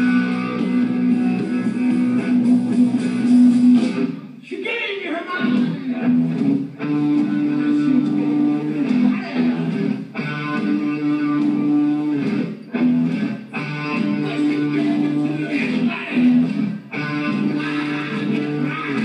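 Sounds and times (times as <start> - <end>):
electric guitar sustained chords: 0.0 - 3.8
hard rock band playing: 0.0 - 4.4, 5.4 - 19.0.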